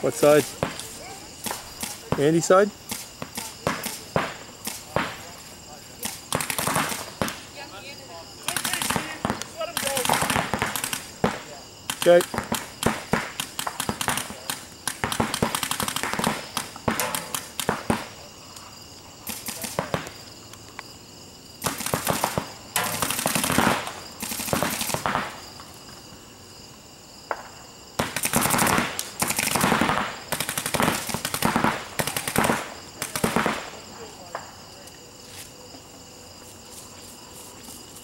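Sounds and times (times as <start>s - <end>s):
paintball markers firing: 6.0s - 7.4s, 8.4s - 18.0s, 19.3s - 20.2s.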